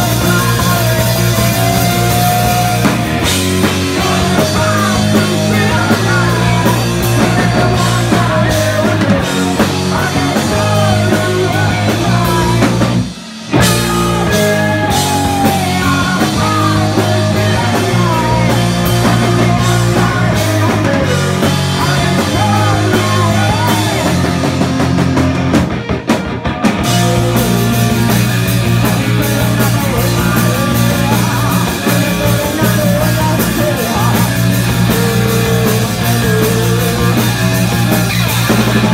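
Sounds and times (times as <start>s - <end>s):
woman singing lead: 0.0s - 12.8s, 13.6s - 24.3s
drum kit: 0.0s - 38.9s
electric bass: 0.0s - 38.9s
electric guitar: 0.0s - 38.9s
man singing backing vocals: 3.9s - 12.8s, 13.6s - 24.2s, 28.9s - 37.3s.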